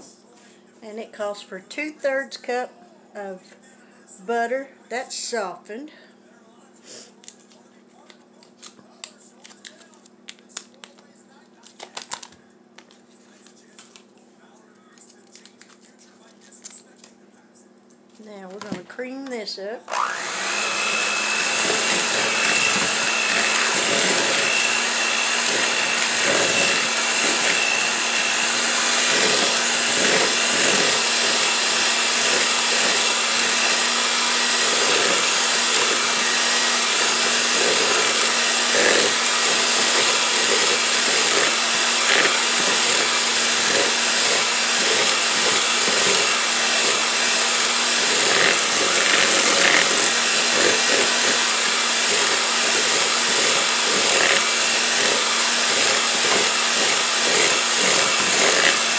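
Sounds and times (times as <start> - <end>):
electric hand mixer running: 19.9 - 58.9
mixer beaters rattling: 20.0 - 58.9.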